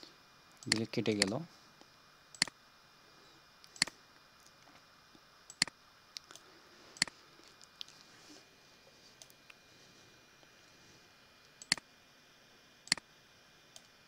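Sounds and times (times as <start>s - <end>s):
computer mouse clicking: 0.6s - 1.4s, 2.3s - 2.5s, 3.7s - 3.9s, 5.5s - 6.4s, 11.5s - 11.8s.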